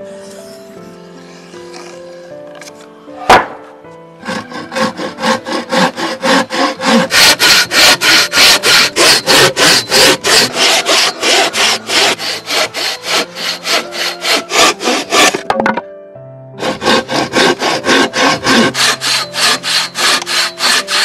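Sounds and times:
hand saw cutting wood: 0:04.2 - 0:15.7, 0:16.6 - 0:21.0.

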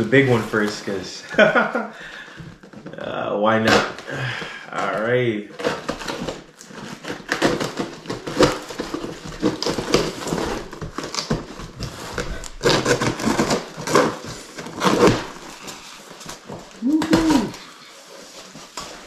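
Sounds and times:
blade slitting packing tape: 0:05.6 - 0:16.0.

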